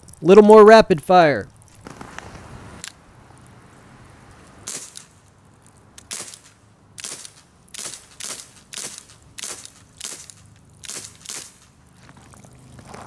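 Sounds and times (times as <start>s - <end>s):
air pistol sharp pops: 4.7s - 5.2s, 6.0s - 11.8s.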